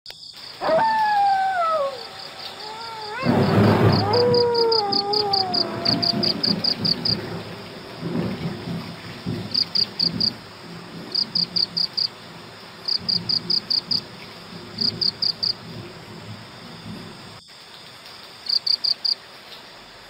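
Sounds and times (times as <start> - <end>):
crickets chirping: 0.1 - 20.0
low rumbling noise: 2.6 - 11.2.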